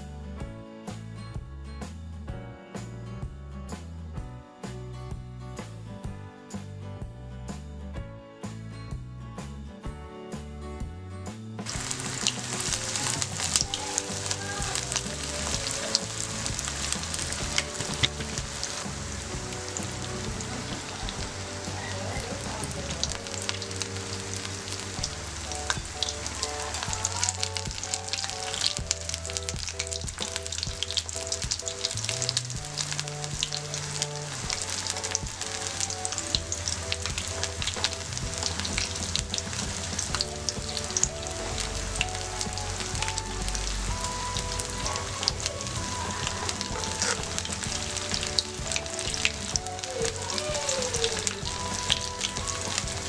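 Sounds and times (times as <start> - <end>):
food deep-frying in oil: 11.6 - 53.0.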